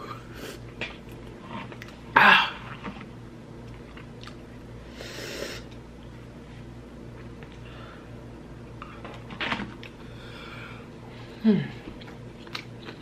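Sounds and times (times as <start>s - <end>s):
person chewing: 2.6s - 4.6s, 12.0s - 13.0s.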